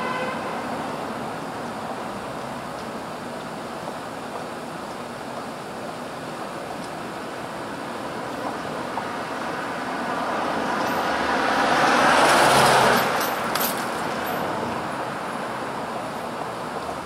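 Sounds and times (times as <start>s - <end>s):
distant traffic hiss: 0.0s - 17.0s
car driving past: 10.0s - 13.2s.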